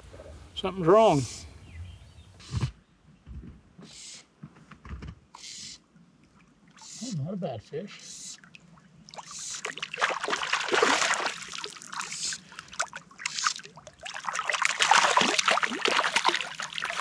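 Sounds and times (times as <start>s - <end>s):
fish thrashing and splashing: 9.2s - 17.0s.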